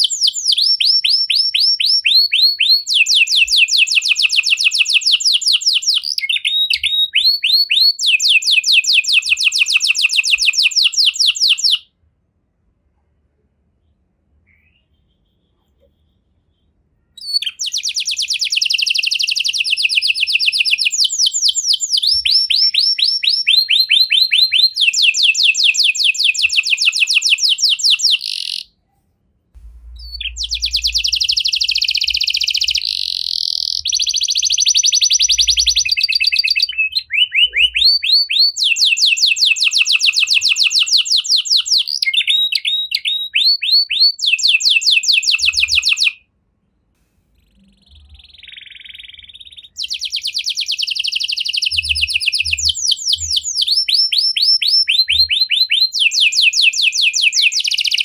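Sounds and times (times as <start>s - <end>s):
canary singing rapid trills: 17.2s - 28.8s, 30.0s - 46.2s, 47.4s - 58.0s.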